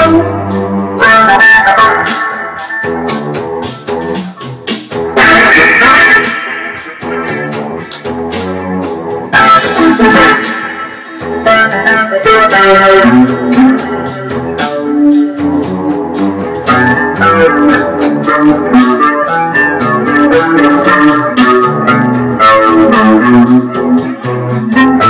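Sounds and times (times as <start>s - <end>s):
plucked guitar notes: 0.0s - 25.0s.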